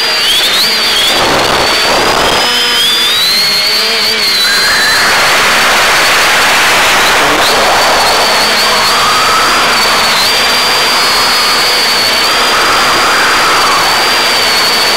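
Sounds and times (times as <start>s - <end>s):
quadcopter motors whining: 0.0s - 14.9s
rushing air noise: 4.4s - 14.9s.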